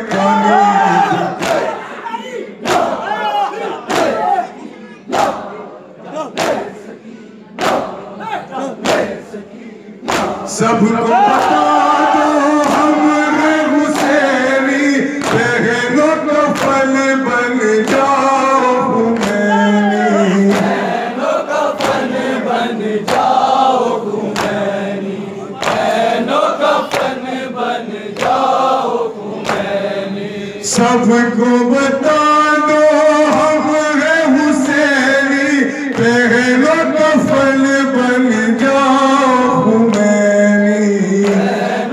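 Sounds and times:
men chanting in chorus: 0.0s - 41.9s
chest-beating slaps: 1.4s - 1.8s, 3.8s - 4.3s, 6.3s - 6.8s, 8.8s - 9.2s, 10.0s - 10.5s, 13.9s - 14.3s, 20.5s - 20.8s, 21.8s - 22.2s, 23.0s - 23.4s, 24.3s - 24.6s, 25.6s - 26.0s, 26.9s - 27.2s.

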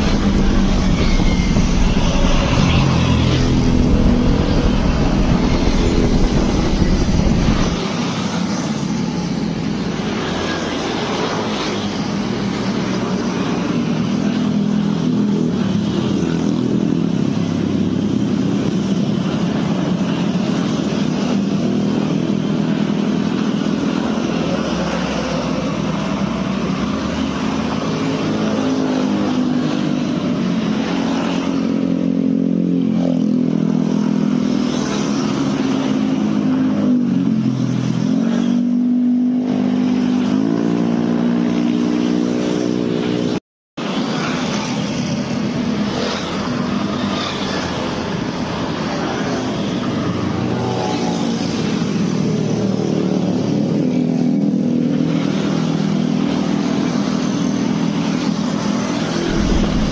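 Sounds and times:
heavy low rumble: 0.0s - 7.9s, 59.1s - 59.9s
car engine and road noise: 0.0s - 59.9s.

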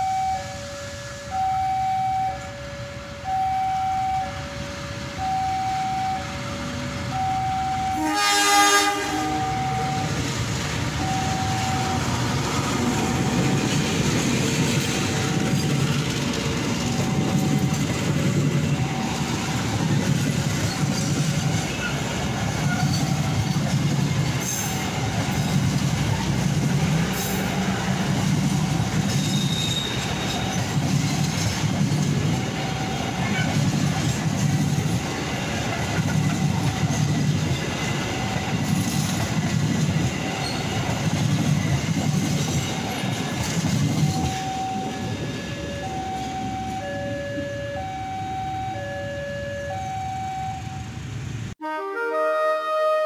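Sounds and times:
train wheel squeals: 11.0s - 47.8s
train wheels clattering over rail joints: 12.1s - 45.4s.

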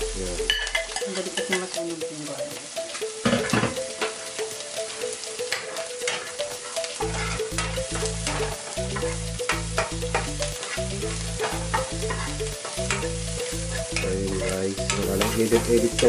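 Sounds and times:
background music with bass line: 0.0s - 16.0s
onion sizzling in a frying pan: 0.0s - 16.0s
utensil scraping and tapping pan: 3.2s - 4.2s, 5.5s - 16.0s.

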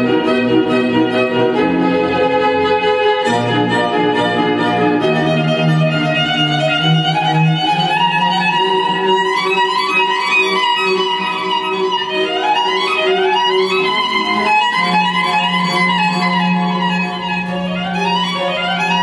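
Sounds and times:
bowed violin-like melody: 0.0s - 19.0s
held low note: 3.2s - 7.7s.

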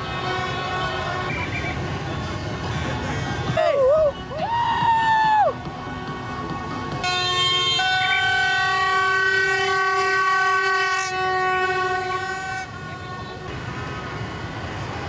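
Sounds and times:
horns blowing long notes: 0.0s - 15.0s
street traffic noise: 0.0s - 15.0s.

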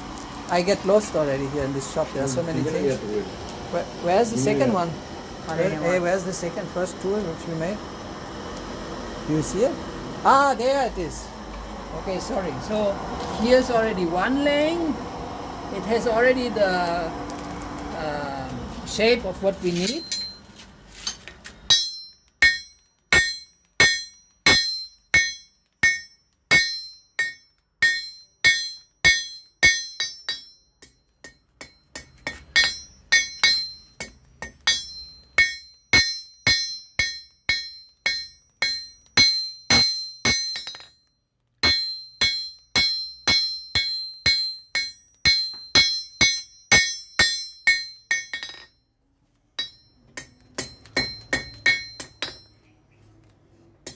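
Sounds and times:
hammer striking iron on anvil: 19.8s - 41.0s, 41.6s - 48.8s, 49.6s - 52.6s.

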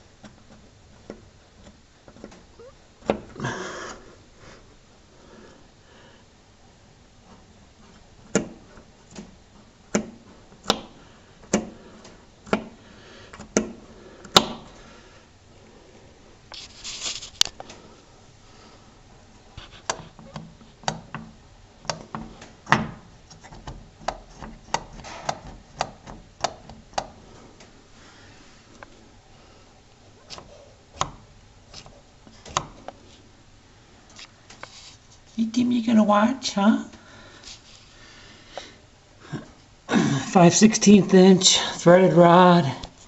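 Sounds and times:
short rustle: 16.5s - 17.5s.

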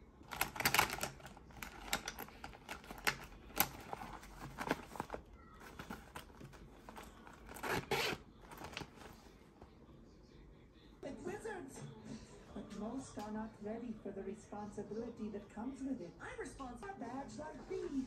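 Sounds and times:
packaging crinkling and tearing: 0.2s - 9.3s.

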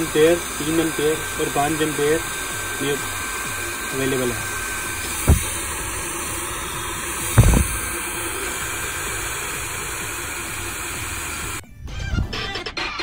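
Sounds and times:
blower fan rushing air: 0.0s - 11.6s
low thumps: 5.1s - 5.7s, 7.3s - 7.9s.

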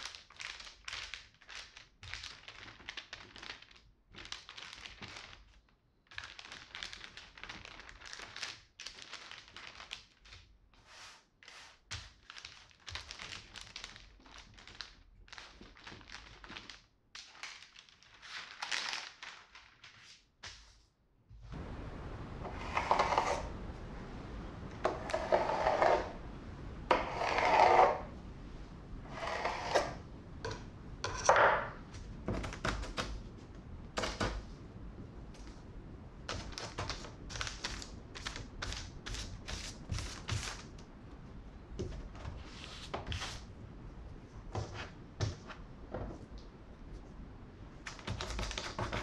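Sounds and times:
crisp clicks and crackles: 0.0s - 10.5s, 11.9s - 20.0s, 36.2s - 41.0s
baking paper rustling: 0.0s - 23.6s, 35.3s - 40.8s, 41.8s - 43.6s, 47.8s - 49.0s.

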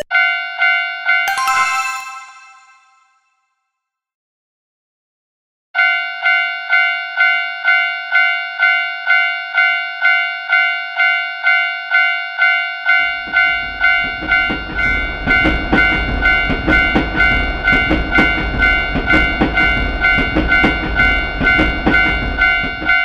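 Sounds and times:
level-crossing warning bell: 0.1s - 3.1s, 5.8s - 23.0s
train wheels clacking over rails: 13.1s - 23.0s.

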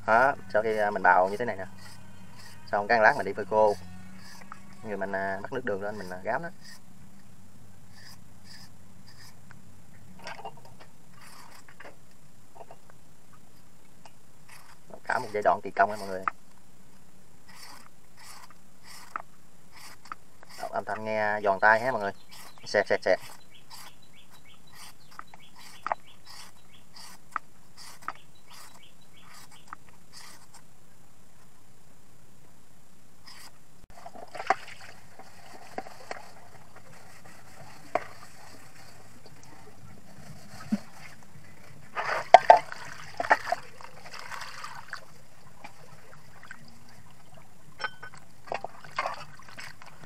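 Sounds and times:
shredder scraping coconut: 0.1s - 6.8s
bird chirps: 22.1s - 27.2s, 28.1s - 29.8s
water splashing into plastic basin: 34.0s - 35.0s, 42.0s - 45.1s, 48.5s - 50.0s.

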